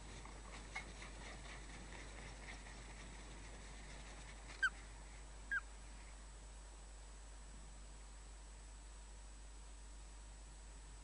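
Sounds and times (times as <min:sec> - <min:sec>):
ospreys chirping: 0:05.5 - 0:05.7.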